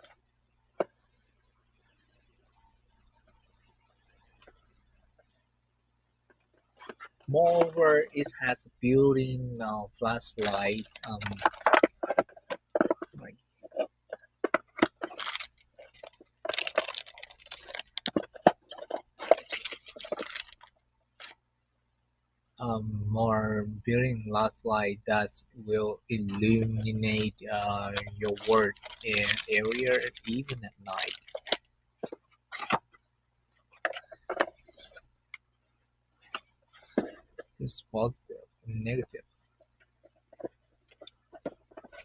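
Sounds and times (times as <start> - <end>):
plastic bag crinkling: 10.3 - 21.4, 26.6 - 32.8
cable being moved: 10.4 - 21.4, 26.4 - 33.0, 33.6 - 35.1, 40.3 - 42.0.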